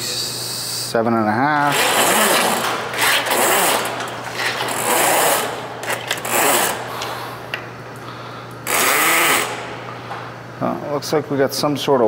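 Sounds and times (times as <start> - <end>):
drain snake cable rattling in pipe: 1.6 - 6.9.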